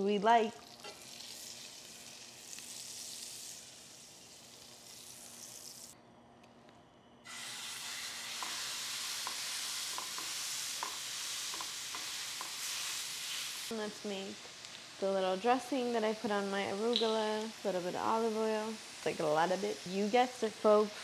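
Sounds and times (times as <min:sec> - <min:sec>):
meat and onions sizzling in pan: 0:00.6 - 0:06.0, 0:07.3 - 0:21.0.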